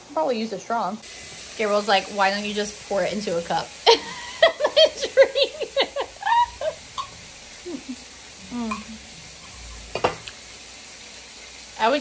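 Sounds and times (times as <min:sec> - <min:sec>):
meat sizzling on a grill: 0:00.1 - 0:12.0
burst of laughter: 0:03.9 - 0:07.0.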